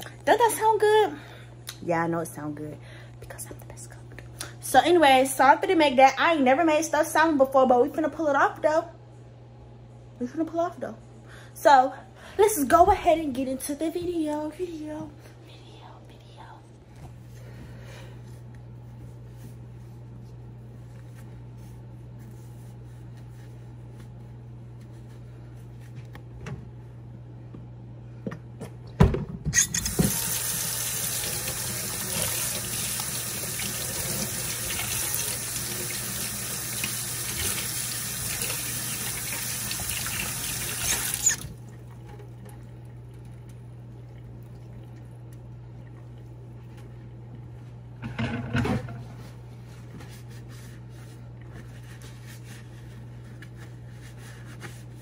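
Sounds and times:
tap water running: 29.6s - 46.8s.

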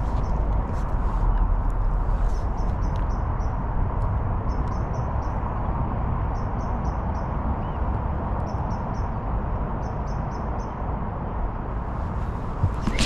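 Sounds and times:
wind buffeting microphone: 11.7s - 13.0s.

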